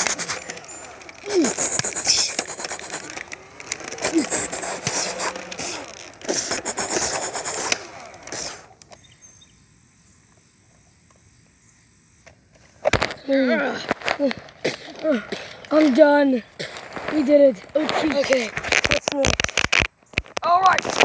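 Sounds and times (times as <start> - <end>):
toy blasters clattering clicks: 0.0 - 9.0.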